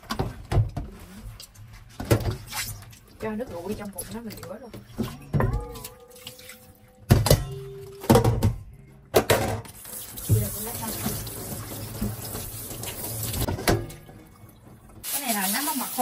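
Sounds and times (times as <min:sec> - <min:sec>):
knocks in a metal sink: 0:07.1 - 0:10.6
water running into a sink: 0:09.8 - 0:16.0.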